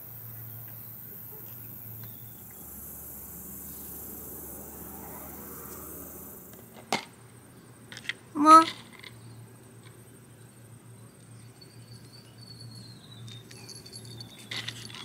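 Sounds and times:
insects trilling: 0.0 - 7.6.

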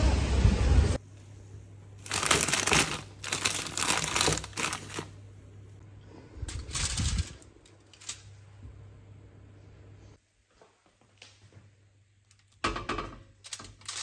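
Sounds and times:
aluminium foil crinkling: 2.0 - 5.2, 6.5 - 8.4, 13.4 - 14.0
plastic bag crinkling: 2.0 - 5.2.

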